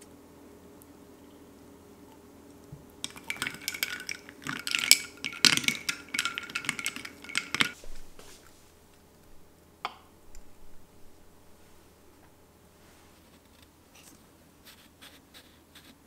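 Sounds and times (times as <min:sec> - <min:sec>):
ice cubes clinking in a glass: 0:03.0 - 0:07.8.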